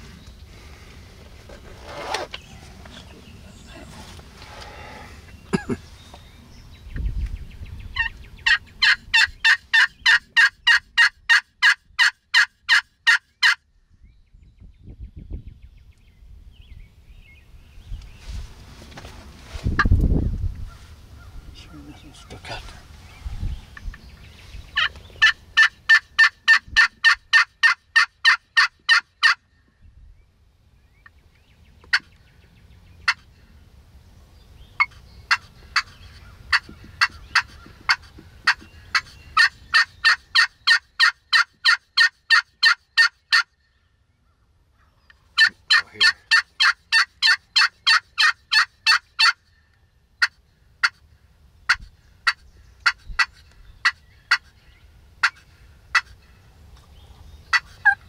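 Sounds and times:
friction turkey call yelps: 0:08.0 - 0:13.6, 0:24.8 - 0:29.5, 0:34.8 - 0:43.6, 0:45.4 - 0:49.5, 0:50.2 - 0:51.0, 0:51.7 - 0:54.6, 0:55.2 - 0:56.2, 0:57.5 - 0:58.0.

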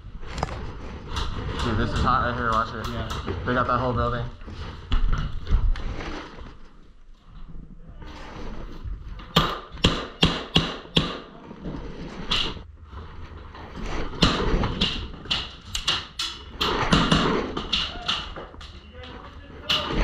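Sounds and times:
sharp clicks and knocks: 0:14.2 - 0:20.0.

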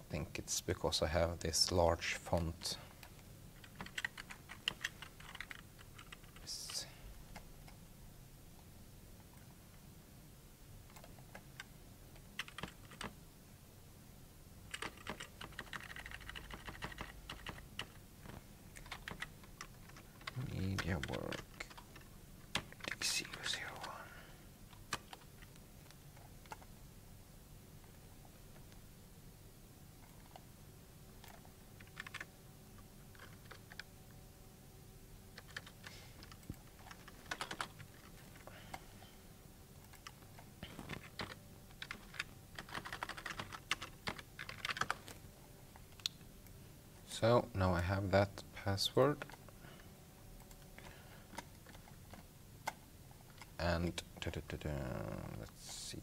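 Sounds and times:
low steady hum: 0:00.0 - 0:56.0
typing on keyboard: 0:03.0 - 0:06.5, 0:12.4 - 0:13.2, 0:14.7 - 0:18.0, 0:18.8 - 0:24.0, 0:24.7 - 0:25.5, 0:31.2 - 0:32.3, 0:33.1 - 0:33.9, 0:35.4 - 0:38.4, 0:39.8 - 0:45.2.

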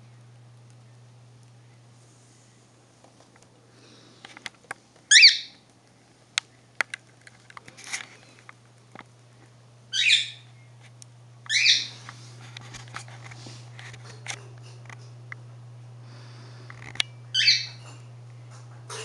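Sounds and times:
parrot harsh calls: 0:05.1 - 0:05.6, 0:09.9 - 0:10.4, 0:11.5 - 0:11.9, 0:17.4 - 0:17.8.

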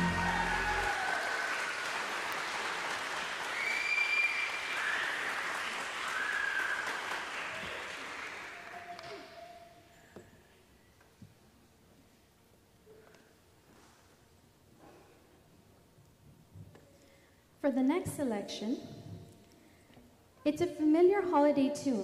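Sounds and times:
high cheers: 0:00.0 - 0:02.2, 0:03.4 - 0:09.9
audience applause: 0:00.0 - 0:09.4.

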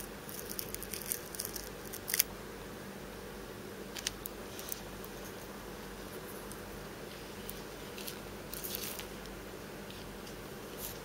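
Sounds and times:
steady low hum: 0:00.0 - 0:11.0
dry insect wings crackling: 0:00.2 - 0:02.3.

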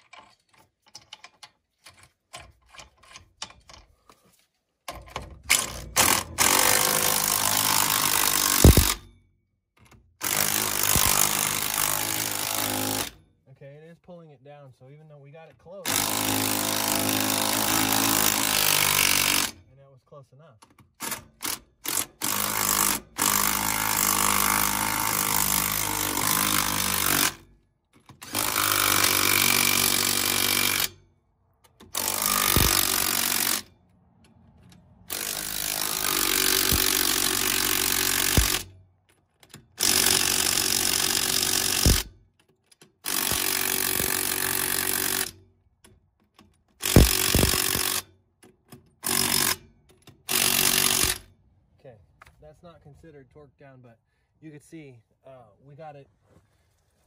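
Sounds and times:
impact wrench bursts: 0:05.4 - 0:09.1, 0:10.2 - 0:13.2, 0:15.8 - 0:19.6, 0:20.7 - 0:27.5, 0:28.1 - 0:31.1, 0:31.7 - 0:33.8, 0:35.1 - 0:38.8, 0:39.5 - 0:42.2, 0:43.0 - 0:45.4, 0:46.8 - 0:48.1, 0:49.0 - 0:51.3.

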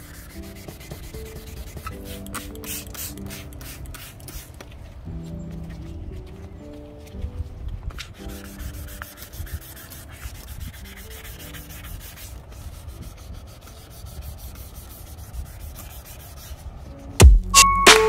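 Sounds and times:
sandpaper scrubbing on plastic: 0:00.0 - 0:04.9, 0:07.9 - 0:17.1.

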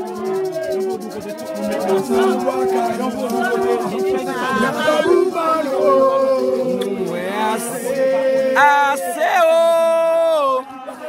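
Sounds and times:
men singing a chant unaccompanied: 0:00.0 - 0:11.0
loud rising cry: 0:01.5 - 0:08.6.

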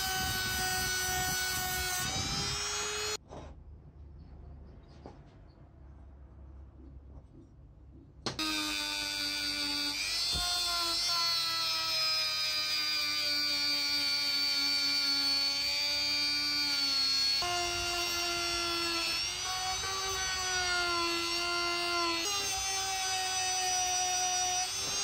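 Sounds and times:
rotary tool grinding metal: 0:00.0 - 0:03.2, 0:08.4 - 0:25.0.

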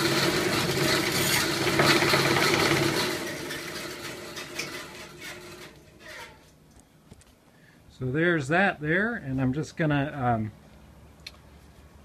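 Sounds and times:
bandsaw cutting wood: 0:00.0 - 0:06.4.

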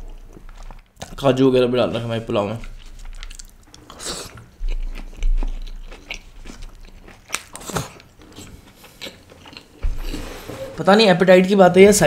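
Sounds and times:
chewing and crunching: 0:00.0 - 0:09.8
dull low thud: 0:09.8 - 0:10.2.

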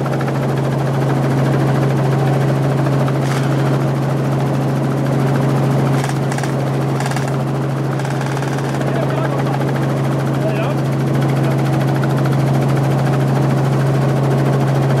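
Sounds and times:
helicopter rotor and engine drone: 0:00.0 - 0:15.0
broad rushing noise: 0:02.3 - 0:04.1, 0:05.8 - 0:11.7.

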